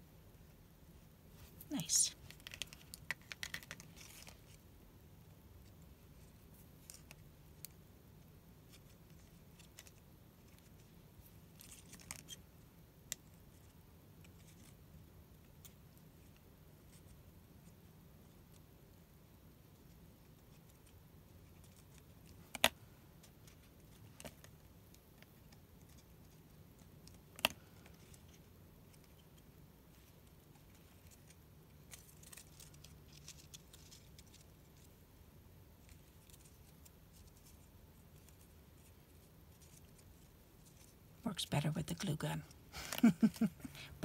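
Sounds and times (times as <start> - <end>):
paper strips handled: 1.4 - 4.6, 20.5 - 35.0.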